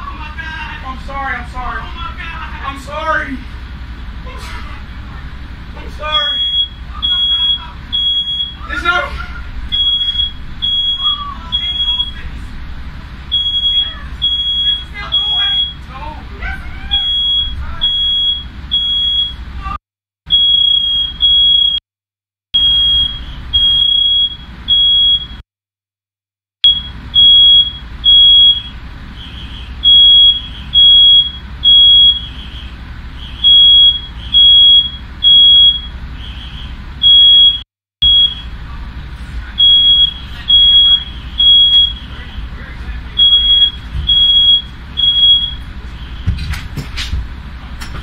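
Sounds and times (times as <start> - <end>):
smoke alarm beeping: 6.0 - 8.9, 9.7 - 12.3, 13.3 - 15.9, 16.9 - 19.4, 20.3 - 21.8, 22.6 - 25.4, 26.6 - 38.6, 39.5 - 46.4.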